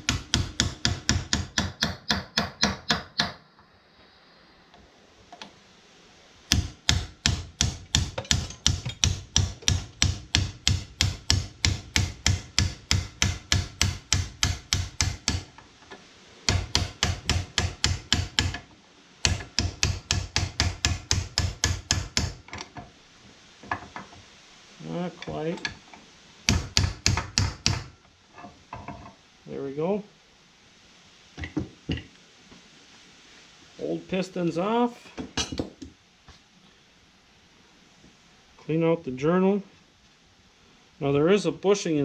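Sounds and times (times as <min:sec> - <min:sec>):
hammer tapping metal: 0:00.0 - 0:03.4, 0:06.5 - 0:15.5, 0:16.5 - 0:18.6, 0:19.2 - 0:22.4, 0:26.5 - 0:27.9.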